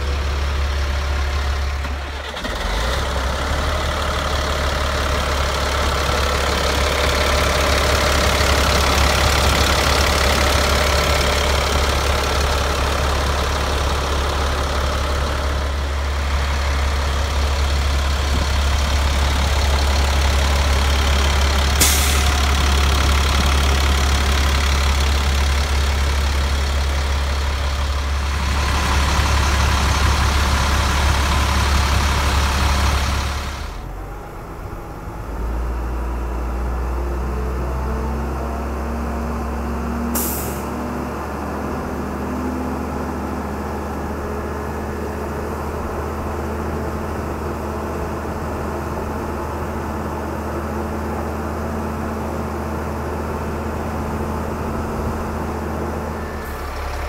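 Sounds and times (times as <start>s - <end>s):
diesel truck engine idling: 0.0s - 57.0s
brief high hiss: 21.8s - 22.4s.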